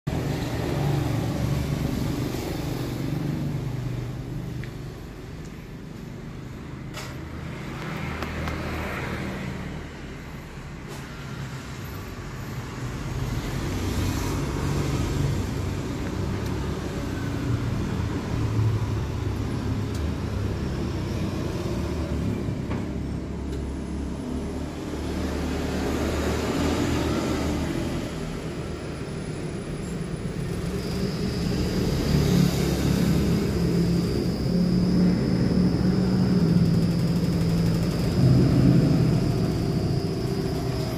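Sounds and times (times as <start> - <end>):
thin high whine: 28.6 - 40.9.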